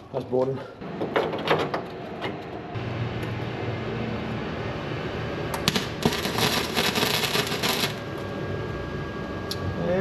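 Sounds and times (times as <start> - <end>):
welding arc crackling: 5.5 - 8.2.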